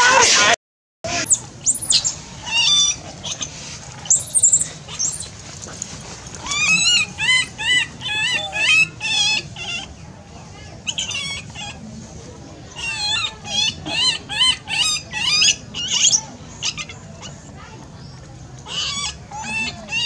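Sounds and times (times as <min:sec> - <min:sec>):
high-pitched animal squeals: 0:01.1 - 0:03.5, 0:06.4 - 0:10.0, 0:10.9 - 0:11.8, 0:12.7 - 0:17.3, 0:18.7 - 0:20.0.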